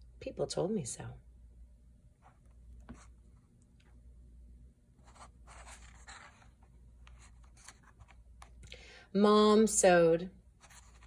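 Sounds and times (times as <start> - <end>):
paper page being turned: 5.0 - 8.5, 10.6 - 11.0.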